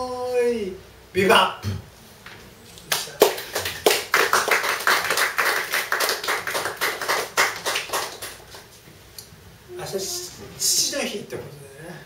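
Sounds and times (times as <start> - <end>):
audience applauding: 2.9 - 8.7.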